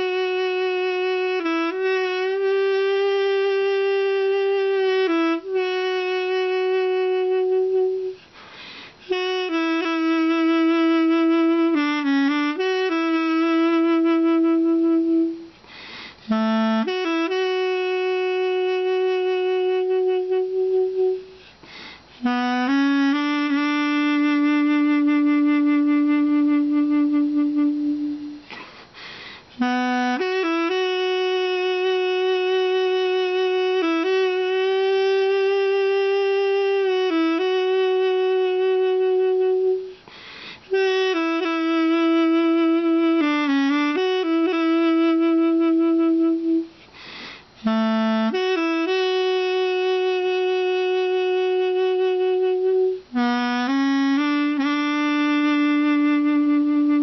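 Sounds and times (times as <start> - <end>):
double-reed pipe melody: 0.0 - 8.2, 9.0 - 15.6, 16.3 - 21.5, 22.2 - 28.5, 29.6 - 40.0, 40.7 - 46.8, 47.6 - 57.0
player breathing: 8.2 - 9.1, 15.6 - 16.3, 21.4 - 22.2, 28.5 - 29.6, 39.9 - 40.7, 46.7 - 47.6.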